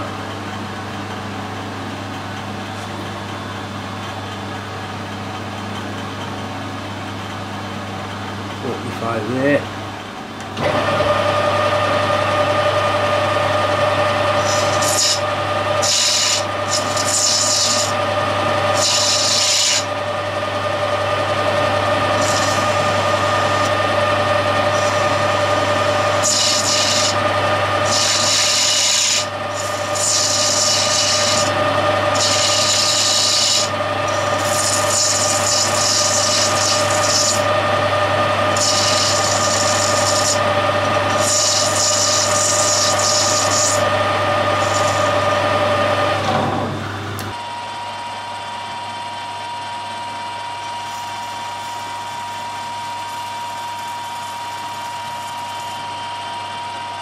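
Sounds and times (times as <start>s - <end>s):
metal lathe hum and whine: 0.0s - 57.0s
lathe tool scraping hiss: 13.4s - 20.0s, 20.7s - 46.0s.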